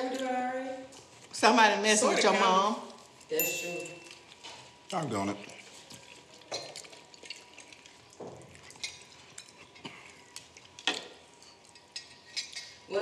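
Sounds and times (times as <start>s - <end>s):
person chewing food: 4.0s - 12.6s.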